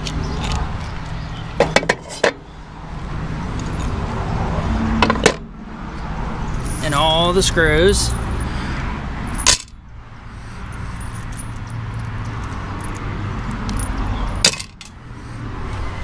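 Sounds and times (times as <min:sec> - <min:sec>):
metal screws clinking on concrete: 0:09.3 - 0:09.8, 0:10.9 - 0:14.9.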